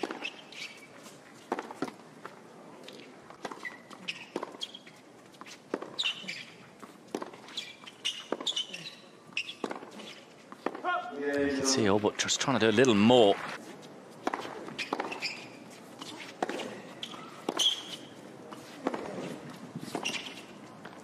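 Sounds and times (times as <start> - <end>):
shoes squeaking on court: 0.0 - 21.0
ball bouncing: 14.2 - 15.3.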